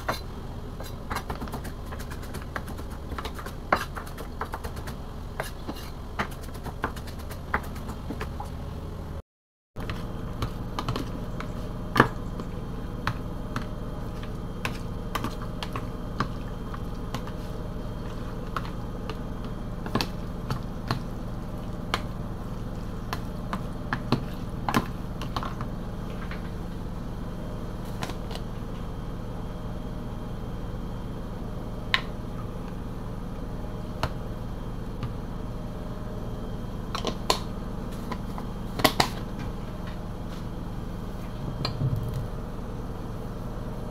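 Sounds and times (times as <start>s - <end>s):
steady low hum: 0.0s - 9.2s, 9.8s - 43.9s.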